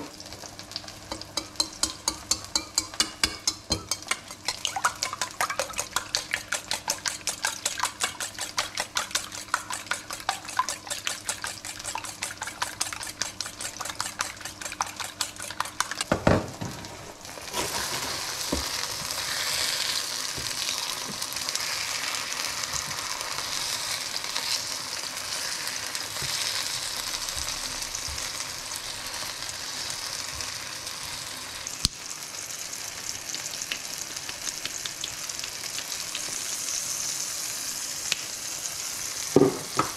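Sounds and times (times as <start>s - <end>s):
tomato slices sizzling in oil: 0.0s - 39.9s
whisk beating eggs in metal bowl: 1.1s - 16.2s
knock: 39.4s - 39.9s.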